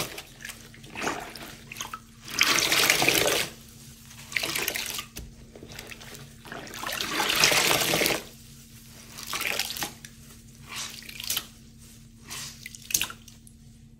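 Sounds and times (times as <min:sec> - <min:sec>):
water splashes and drips: 0:00.0 - 0:03.6, 0:09.1 - 0:10.2, 0:12.5 - 0:13.6
water gushing from squeezed sponge: 0:00.0 - 0:13.4.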